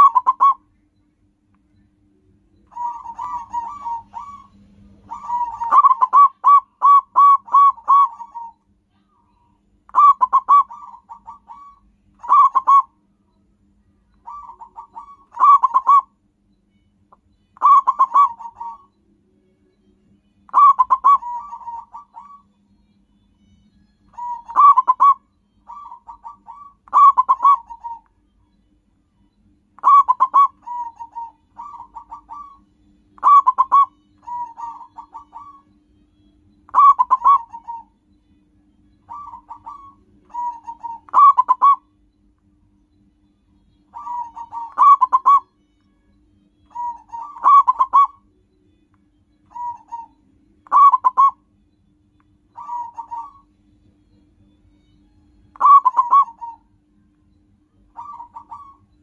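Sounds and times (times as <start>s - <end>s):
dove cooing song: 0.0s - 0.6s, 2.7s - 8.6s, 9.2s - 13.0s, 14.2s - 16.2s, 17.6s - 19.0s, 20.2s - 22.6s, 24.0s - 28.2s, 29.8s - 42.0s, 43.6s - 45.6s, 46.7s - 48.3s, 49.4s - 51.6s, 52.5s - 53.5s, 54.9s - 57.0s, 57.8s - 59.0s.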